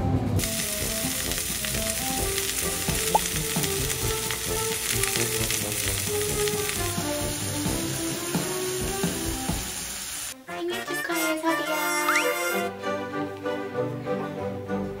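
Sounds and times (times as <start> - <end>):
soft background music: 0.0 - 15.0
steaks sizzling in a frying pan: 0.4 - 10.4.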